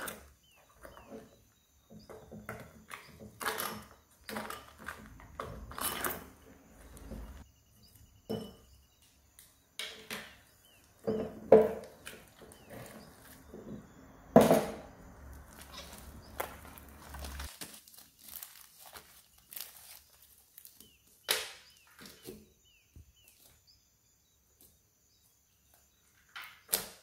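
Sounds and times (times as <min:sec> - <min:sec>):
slime squelching: 0:15.3 - 0:20.0.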